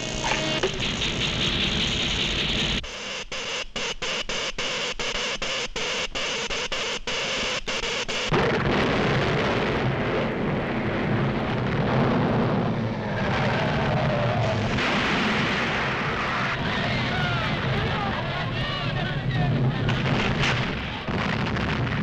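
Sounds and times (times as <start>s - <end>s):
explosion with heavy rumble: 8.3s - 22.0s.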